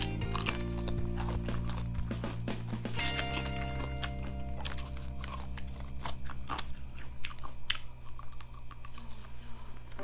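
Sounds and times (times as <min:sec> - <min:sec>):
crunching bites and chewing: 0:00.0 - 0:10.0.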